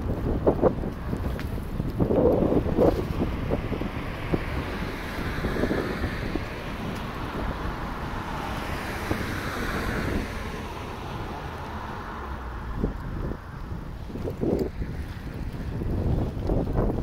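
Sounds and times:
road traffic noise: 0:00.0 - 0:17.0
wind buffeting microphone: 0:00.0 - 0:17.0.

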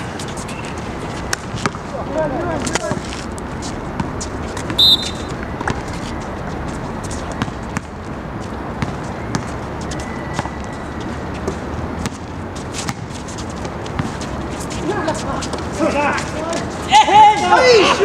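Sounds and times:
background noise: 0:00.0 - 0:18.0
sharp high squeak: 0:04.8 - 0:05.4
basketball bouncing on court: 0:08.8 - 0:09.6.

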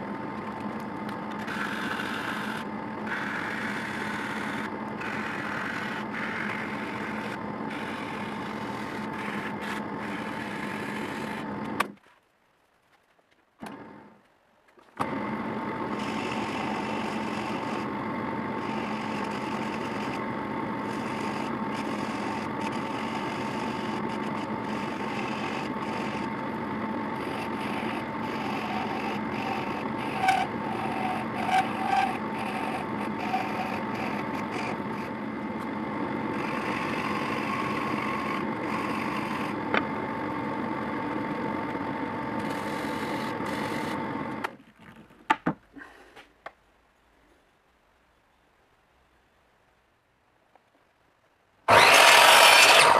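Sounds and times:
drill press running: 0:00.0 - 0:11.9, 0:15.0 - 0:44.5, 0:51.7 - 0:52.9
blade scraping turning wood: 0:00.3 - 0:11.8, 0:15.9 - 0:18.0, 0:18.6 - 0:39.9, 0:51.7 - 0:52.9.

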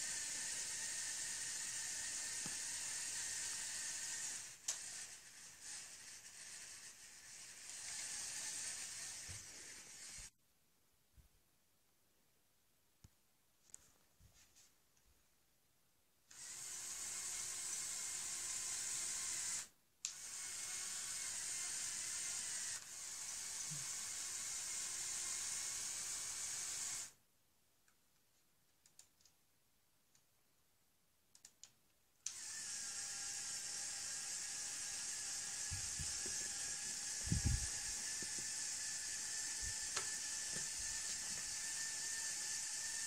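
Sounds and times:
electric motors whining: 0:00.0 - 0:10.3, 0:32.3 - 0:43.0
faint clicks: 0:28.8 - 0:29.4, 0:31.3 - 0:32.4.

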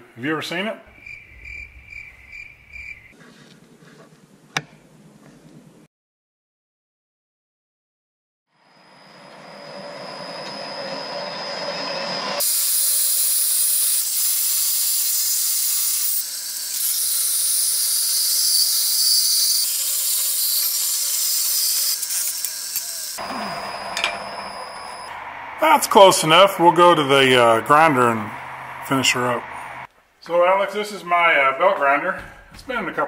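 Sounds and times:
bandsaw whine: 0:08.6 - 0:29.9
bandsaw blade cutting steel: 0:11.8 - 0:29.3.

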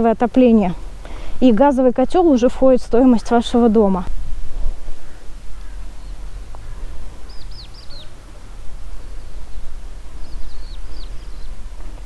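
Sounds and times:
wind rumbling on microphone: 0:00.1 - 0:12.0
small bird chirping: 0:05.0 - 0:11.7.

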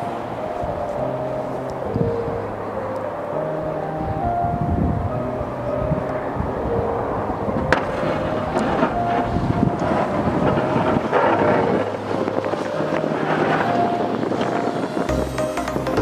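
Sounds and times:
wind buffeting microphone: 0:00.0 - 0:16.0
pickup truck driving through snow: 0:06.2 - 0:16.0.

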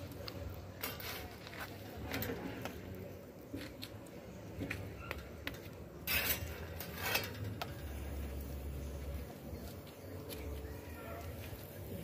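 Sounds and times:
metal tongs scraping on griddle: 0:00.7 - 0:02.9, 0:05.0 - 0:08.2.

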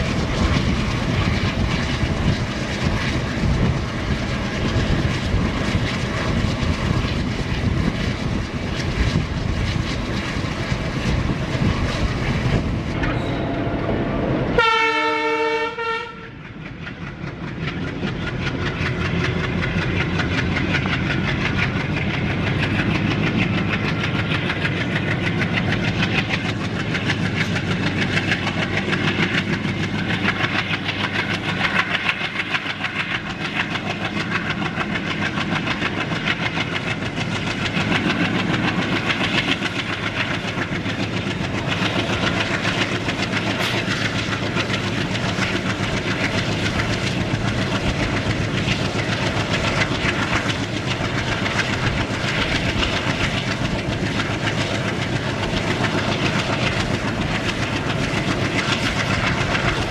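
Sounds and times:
diesel engine chugging: 0:00.0 - 0:59.9
locomotive horn: 0:14.6 - 0:16.4.

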